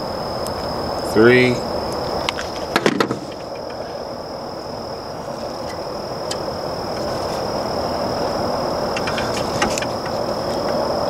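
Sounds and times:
high-pitched insect drone: 0.0s - 11.0s
outdoor background hiss: 0.0s - 11.0s.

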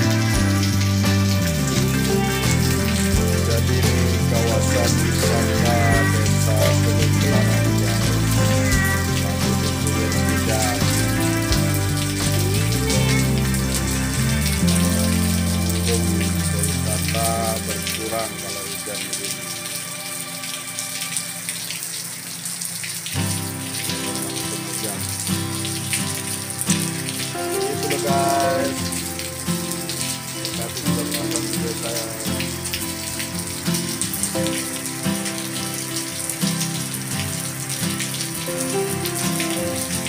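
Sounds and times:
heavy rain pouring: 0.0s - 40.0s
soft background music: 0.0s - 40.0s.

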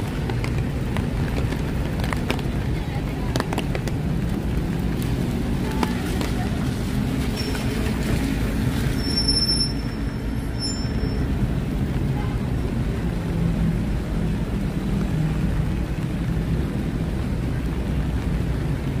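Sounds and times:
road traffic rumbling: 0.0s - 19.0s
high-pitched squeal: 8.8s - 11.3s.

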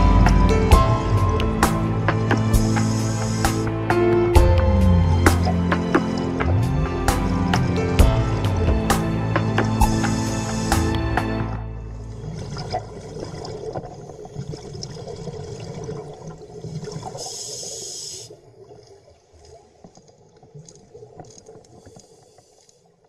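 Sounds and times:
underwater crackles and trickles: 12.0s - 23.0s.

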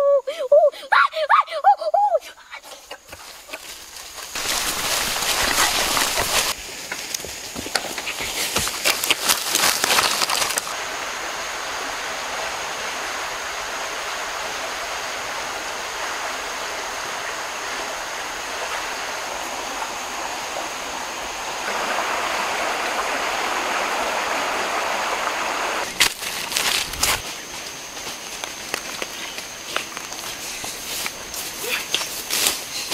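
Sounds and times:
high insect drone: 0.0s - 32.9s
dry leaves and twigs crackling: 2.7s - 10.8s, 25.8s - 32.9s
bare foot crunching on leaves: 3.1s - 10.8s, 25.8s - 32.9s
outdoor rushing hiss: 3.2s - 8.9s, 9.5s - 32.9s.

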